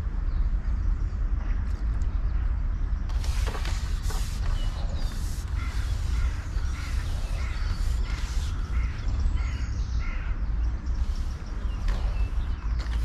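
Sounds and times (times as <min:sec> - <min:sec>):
steady low rumble: 0:00.0 - 0:13.0
bird calling: 0:03.2 - 0:13.0.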